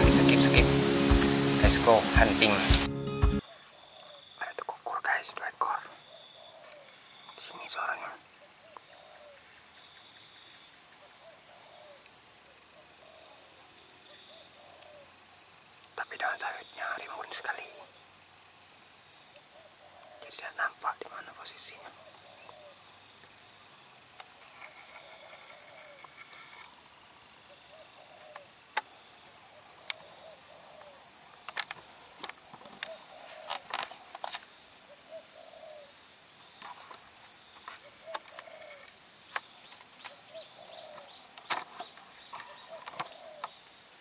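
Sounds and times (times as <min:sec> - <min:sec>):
high-pitched insect chorus: 0:00.0 - 0:44.0.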